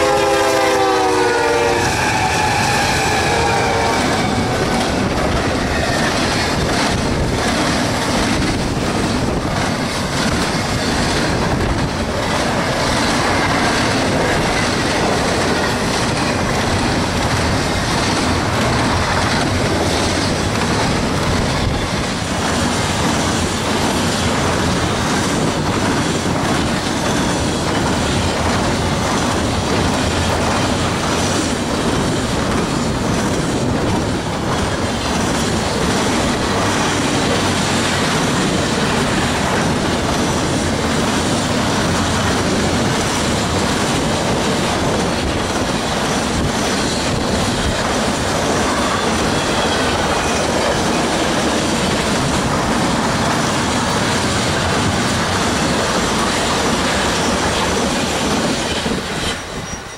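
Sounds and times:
locomotive horn: 0.0 - 5.0
freight train rumbling past: 0.0 - 59.9
wheel squeal: 59.2 - 59.9.

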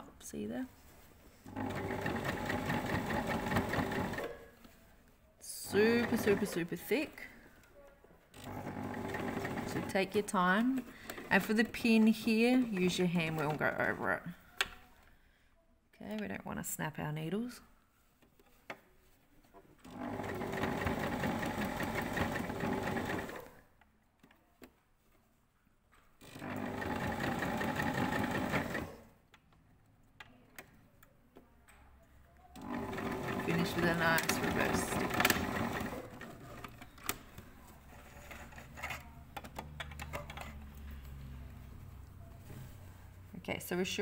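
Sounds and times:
sewing machine stitching: 1.5 - 4.4, 5.7 - 6.7, 8.3 - 10.2, 19.8 - 23.6, 26.2 - 29.1, 32.5 - 36.9.

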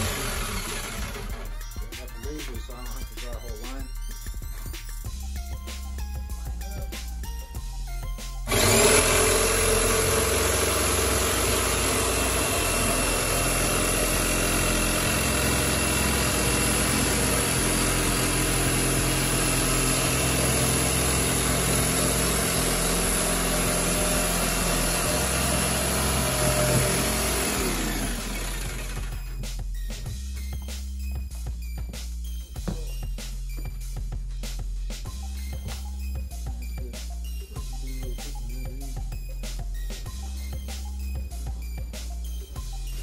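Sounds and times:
jigsaw cutting wood: 0.0 - 1.7, 8.4 - 29.4
hip-hop beat: 1.4 - 8.5, 29.4 - 42.9.

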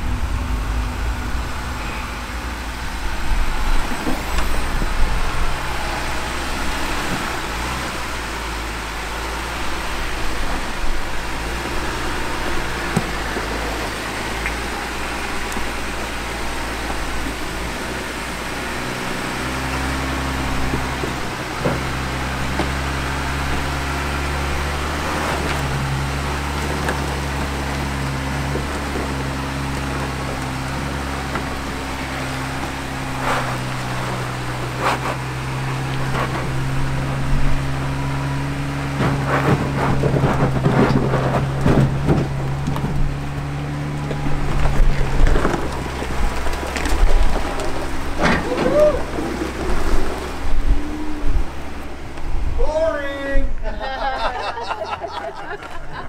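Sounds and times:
truck engine at low revs: 0.0 - 56.0
tyres crunching on rock: 19.4 - 50.9.

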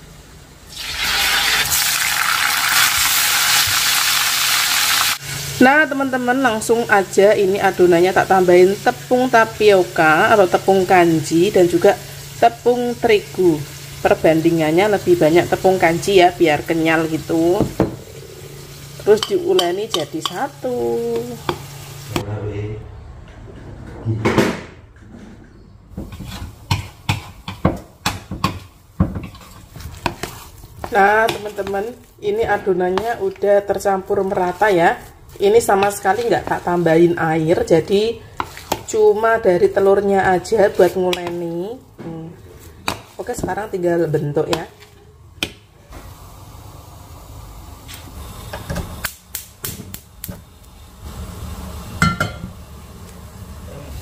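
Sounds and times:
fork scraping plastic bowl: 29.2 - 31.8, 38.4 - 38.9
gas burner rumble: 45.4 - 54.0.

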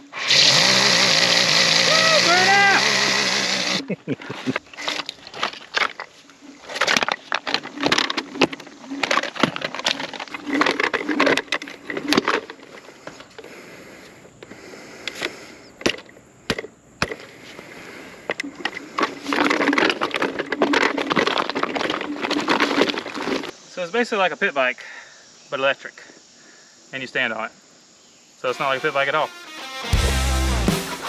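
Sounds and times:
tyres crunching on gravel: 1.5 - 14.6, 17.0 - 23.6
scooter knocking over rocks: 4.4 - 13.4, 15.8 - 17.3, 18.3 - 23.5.

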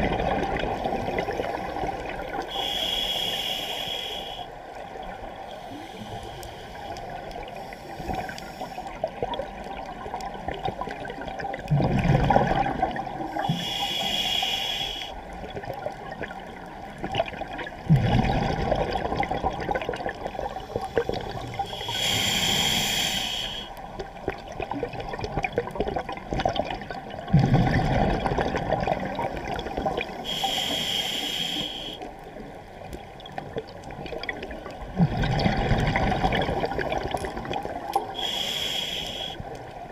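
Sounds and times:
exhaled bubbles rushing: 0.0 - 2.4, 9.1 - 13.2, 15.4 - 21.6, 24.3 - 30.1, 33.4 - 38.1
regulator inhalation hiss: 2.5 - 4.5, 13.4 - 15.2, 20.6 - 23.8, 30.2 - 32.1, 38.2 - 39.5.

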